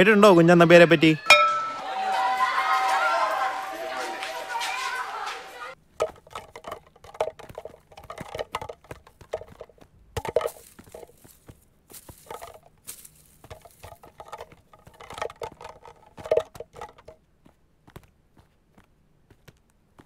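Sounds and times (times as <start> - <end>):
footsteps on gravelly dirt path: 4.1 - 20.0
kicked can clattering: 5.9 - 17.2.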